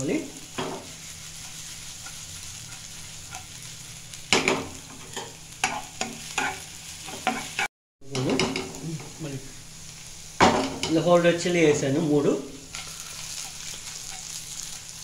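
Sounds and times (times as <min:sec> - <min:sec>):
garlic sizzling in oil: 0:00.0 - 0:15.0
spatula clacking against pan: 0:01.4 - 0:03.5.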